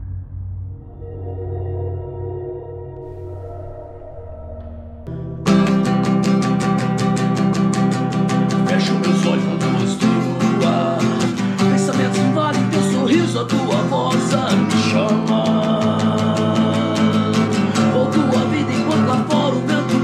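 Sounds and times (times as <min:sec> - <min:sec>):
acoustic guitar strumming: 0:05.1 - 0:20.0
man singing a slow ballad: 0:08.5 - 0:20.0.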